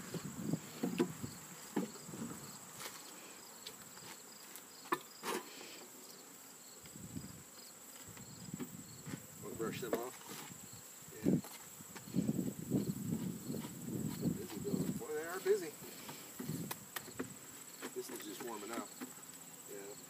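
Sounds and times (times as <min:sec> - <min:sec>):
high insect trill: 0:00.0 - 0:20.0
short knocks and rustles: 0:13.2 - 0:19.2.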